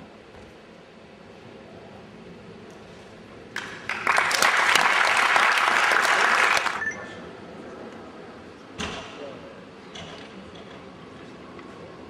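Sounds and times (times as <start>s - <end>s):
small group clapping: 3.5s - 6.8s.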